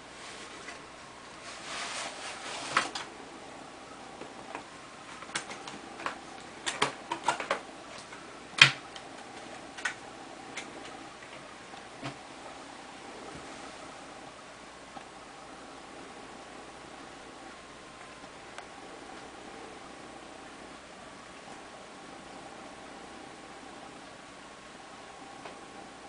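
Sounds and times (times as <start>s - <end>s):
cardboard sleeve rustling and scraping: 0.1s - 3.0s.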